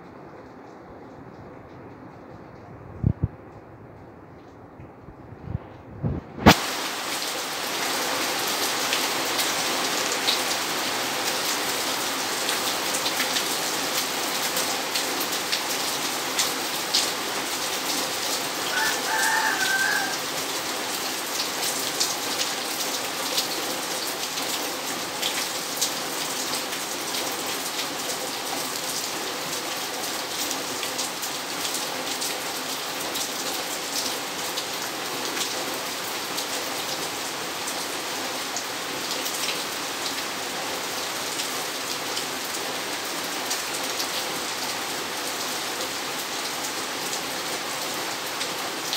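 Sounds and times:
rain on pavement and leaves: 6.4s - 48.9s
rooster crowing: 18.6s - 20.4s.

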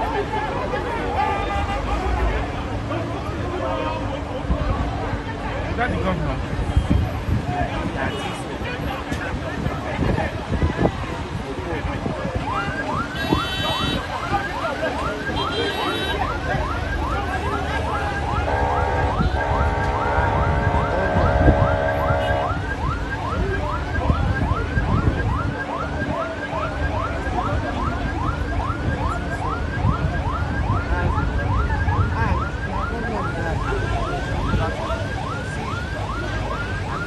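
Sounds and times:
traffic rumble: 0.0s - 37.0s
siren wailing on fast yelp: 12.3s - 37.0s
long steady horn blast: 13.2s - 14.2s, 17.4s - 22.9s.

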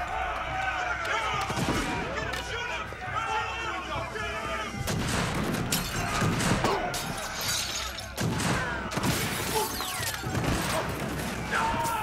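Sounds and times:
gunshots: 4.9s - 7.4s, 8.0s - 12.0s
glass shattering: 5.7s - 8.3s.

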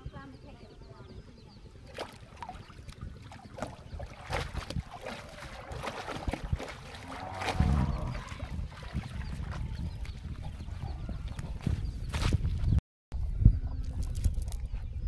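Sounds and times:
water splashing and sloshing: 1.8s - 12.4s
water dripping: 2.0s - 9.1s.

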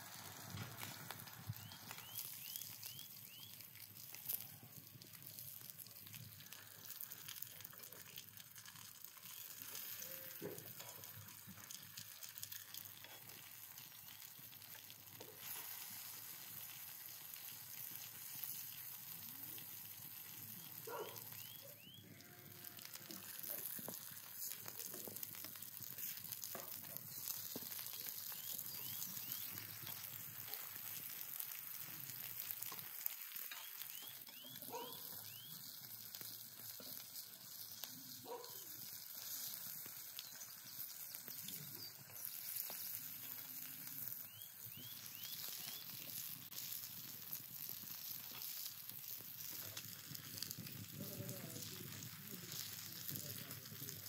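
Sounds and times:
vegetables sizzling on griddle: 0.0s - 54.0s.

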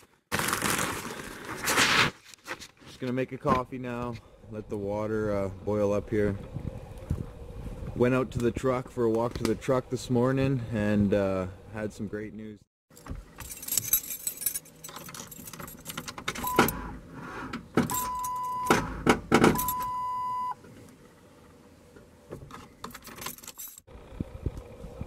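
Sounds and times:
key ring jangling: 13.4s - 16.2s, 23.0s - 23.9s.

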